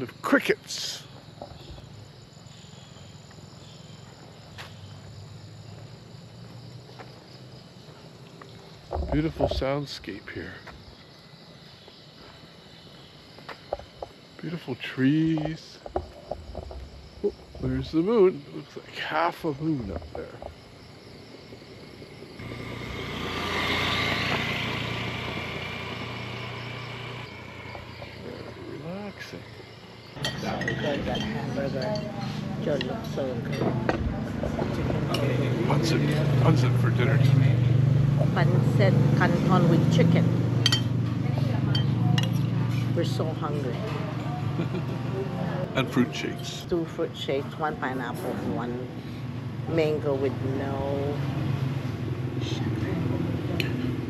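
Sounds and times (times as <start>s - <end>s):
crickets chirping: 0.0s - 54.0s
motorcycle passing by: 22.1s - 29.4s, 30.1s - 54.0s.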